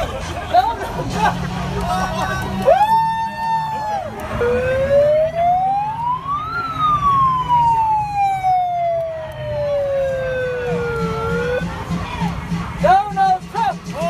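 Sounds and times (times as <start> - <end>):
electronic siren wail: 2.6 - 11.7.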